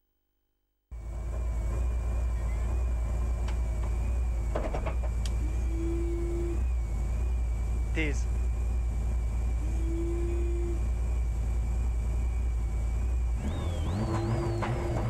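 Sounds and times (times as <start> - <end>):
car engine idling: 0.9 - 15.0
sharp clicks: 5.0 - 5.4
steady tone: 5.2 - 15.0.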